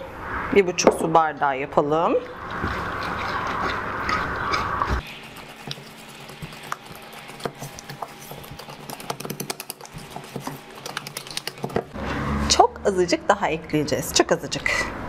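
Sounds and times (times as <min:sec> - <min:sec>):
whisk beating batter in metal bowl: 0:02.5 - 0:12.0.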